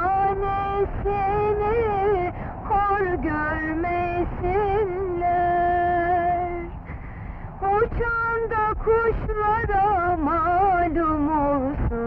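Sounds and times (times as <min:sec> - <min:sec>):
woman singing slow song: 0:00.0 - 0:06.9, 0:07.6 - 0:12.0
woman breathing between phrases: 0:02.3 - 0:02.6, 0:06.8 - 0:07.6.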